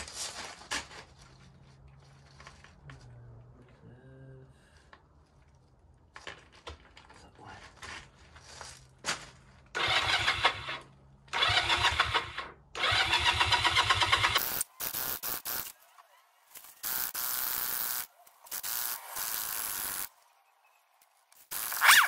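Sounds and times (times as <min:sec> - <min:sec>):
engine cranking on starter: 0:09.8 - 0:14.4.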